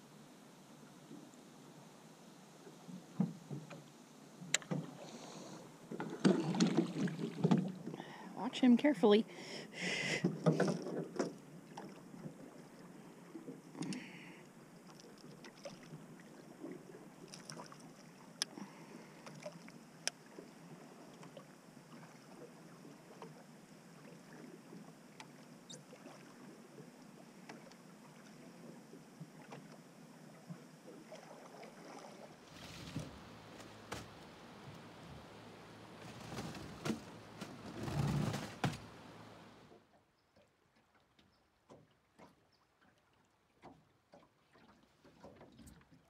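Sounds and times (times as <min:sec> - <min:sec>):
low uneven rumbling: 0:32.2 - 0:39.7.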